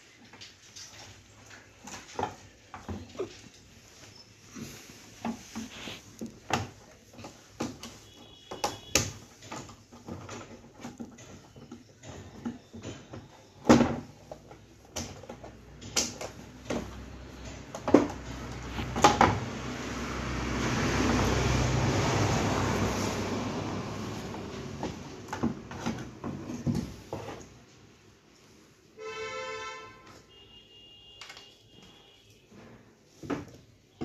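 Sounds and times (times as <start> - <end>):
rustling: 0.0 - 8.4.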